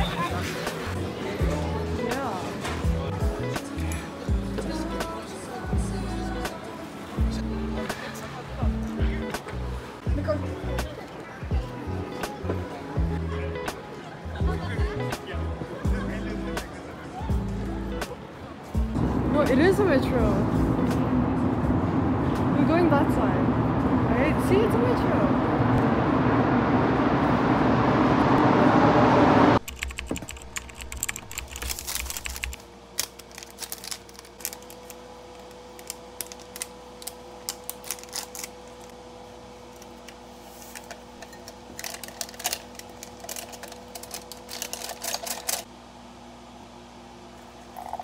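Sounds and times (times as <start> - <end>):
metro train rushing in: 19.0 - 29.6
keyboard typing clicks: 29.6 - 32.5.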